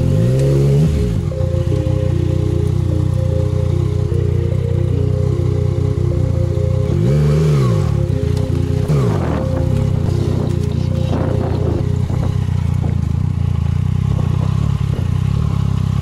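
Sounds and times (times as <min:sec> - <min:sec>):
background music: 0:00.0 - 0:12.8
motorcycle engine revving: 0:00.0 - 0:16.0.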